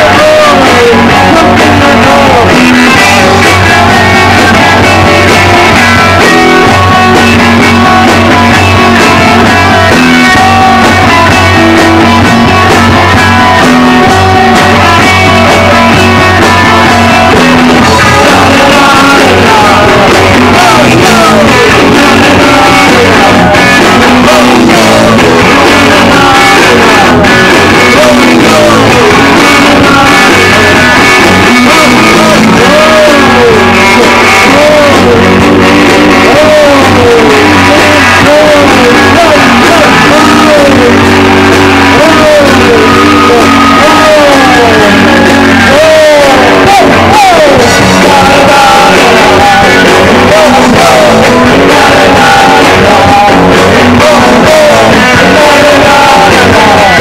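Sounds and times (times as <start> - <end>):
drums: 0.0 - 57.0
electric guitars: 0.0 - 57.0
person singing: 0.0 - 57.0.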